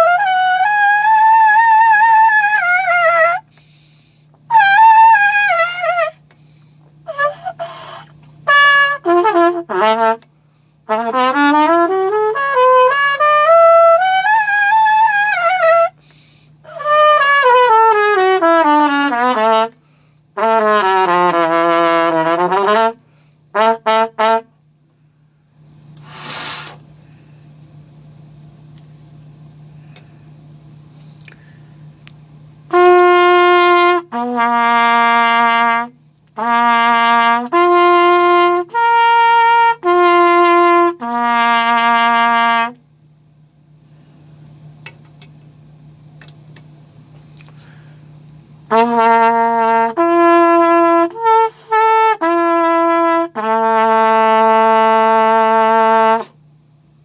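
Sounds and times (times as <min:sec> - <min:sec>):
cornet playing notes: 0:00.0 - 0:03.5, 0:04.5 - 0:06.3, 0:07.0 - 0:19.8, 0:20.4 - 0:24.5, 0:32.7 - 0:42.8, 0:48.6 - 0:56.4
short hiss of air: 0:26.0 - 0:27.2.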